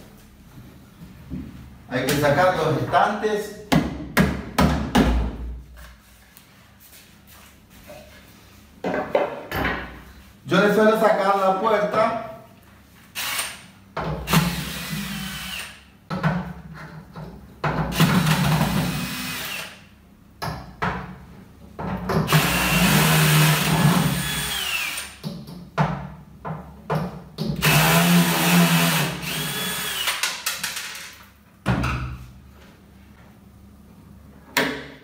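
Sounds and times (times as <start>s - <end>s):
cordless drill running: 13.2s - 13.6s, 14.3s - 15.8s, 18.0s - 19.8s, 22.3s - 25.2s, 27.6s - 30.2s.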